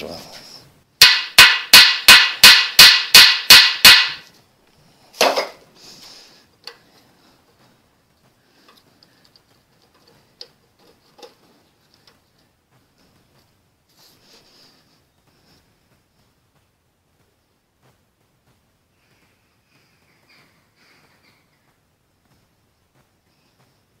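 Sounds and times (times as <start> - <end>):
hammer striking metal bolt: 1.0 - 4.2.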